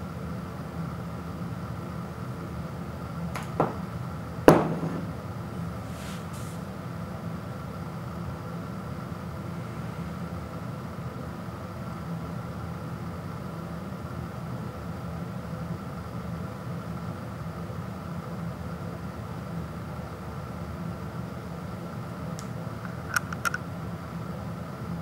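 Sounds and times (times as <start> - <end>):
steady low hum: 0.0 - 25.0
ceramic bowl knocking on wooden floor: 3.4 - 3.9, 4.5 - 5.1.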